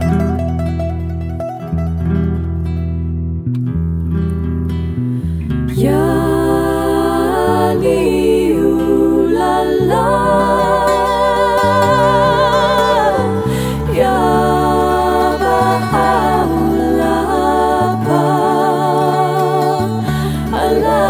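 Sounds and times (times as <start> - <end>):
plucked string accompaniment: 0.0 - 21.0
women singing with vibrato: 5.7 - 21.0.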